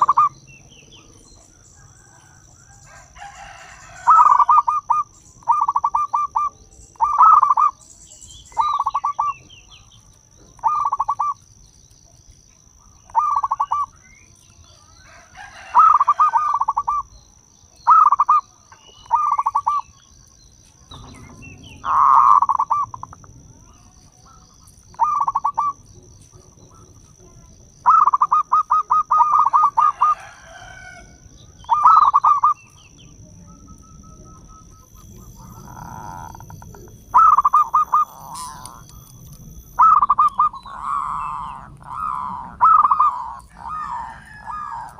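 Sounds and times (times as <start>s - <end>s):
dove cooing: 0.0s - 7.8s, 8.5s - 9.7s, 10.5s - 11.4s, 12.8s - 14.0s, 15.1s - 17.2s, 17.8s - 19.9s, 20.9s - 44.9s.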